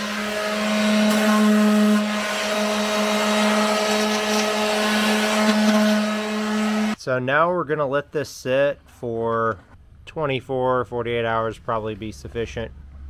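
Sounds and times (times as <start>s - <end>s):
electric sander running: 0.0s - 7.0s.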